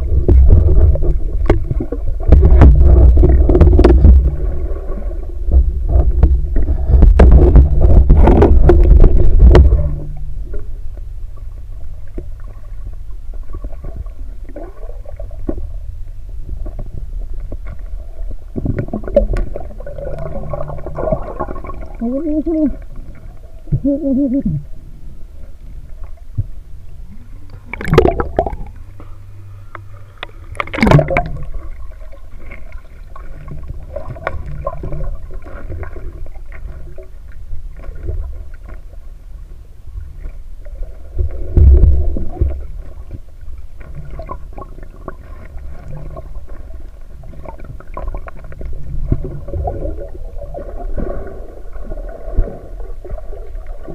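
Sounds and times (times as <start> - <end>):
underwater river rumble and gurgling: 0.0 - 53.9
water sloshes: 16.6 - 23.9, 25.8 - 39.0.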